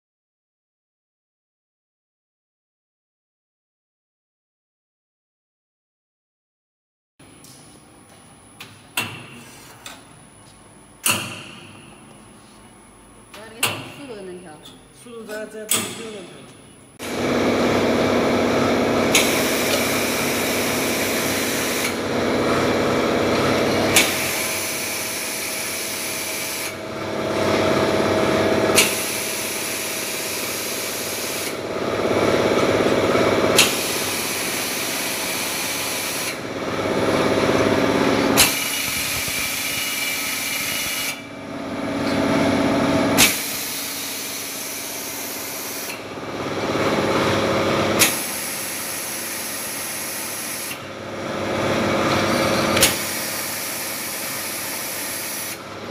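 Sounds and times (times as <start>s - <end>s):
machine sharp clack: 17.0s - 26.9s, 27.8s - 42.0s, 43.1s - 55.6s
can-washing machine running: 17.0s - 55.9s
machine hiss: 19.0s - 22.1s.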